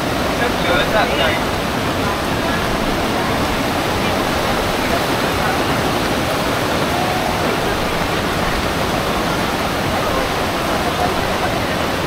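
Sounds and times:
torrential rain pouring: 0:00.0 - 0:12.0.

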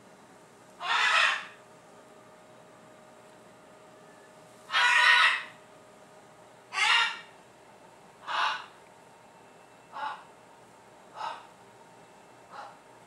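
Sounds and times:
parrot squawking: 0:00.8 - 0:01.6, 0:04.7 - 0:05.6, 0:06.7 - 0:07.3, 0:08.2 - 0:08.7, 0:09.9 - 0:10.3, 0:11.1 - 0:11.5.

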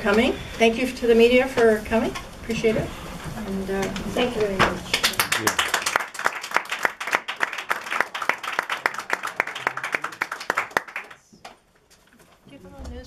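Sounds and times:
small audience applauding: 0:04.9 - 0:11.4.

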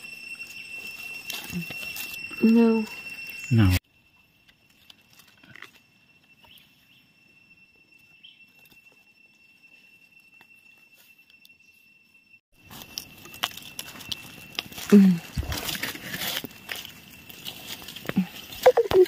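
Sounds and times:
high-pitched tone: 0:00.0 - 0:03.8, 0:18.3 - 0:19.0.

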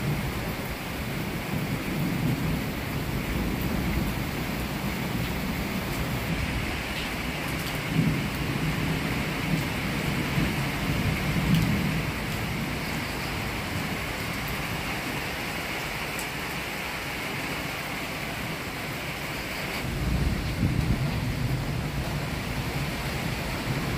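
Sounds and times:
low rolling thunder: 0:00.0 - 0:14.8, 0:19.8 - 0:23.9
heavy rain falling: 0:00.0 - 0:23.9.

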